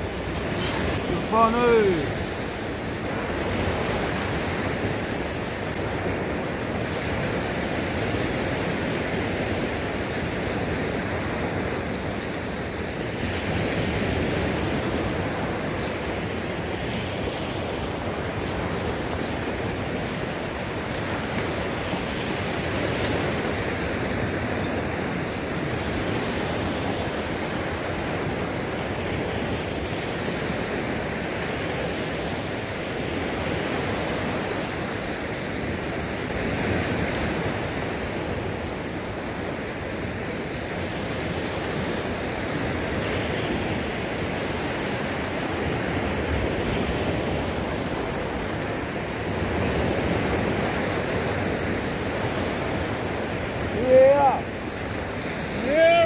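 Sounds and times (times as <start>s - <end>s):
surf washing onto beach: 0.0s - 56.0s
wind buffeting microphone: 0.0s - 56.0s.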